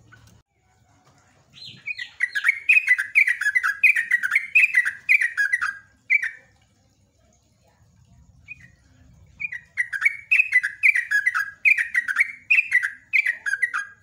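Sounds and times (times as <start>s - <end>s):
bird chattering song: 1.5s - 6.5s, 8.4s - 14.0s.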